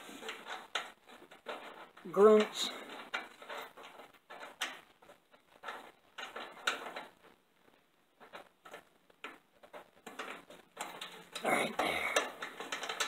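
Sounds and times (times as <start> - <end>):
metal parts and tools clicking: 8.2 - 13.0.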